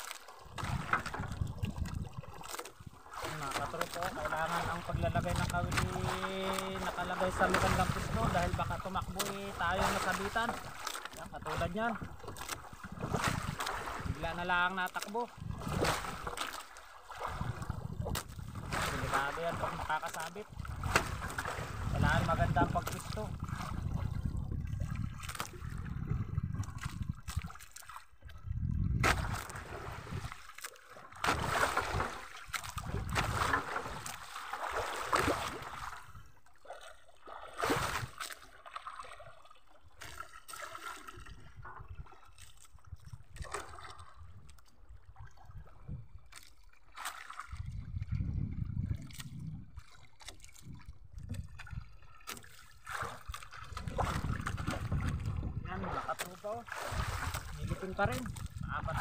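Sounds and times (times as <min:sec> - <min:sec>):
water splashing against boat: 0:00.0 - 0:59.0
wind buffeting microphone: 0:00.4 - 0:14.7, 0:15.3 - 0:16.4, 0:17.2 - 0:30.4, 0:31.2 - 0:34.1, 0:47.4 - 0:52.0, 0:53.1 - 0:59.0.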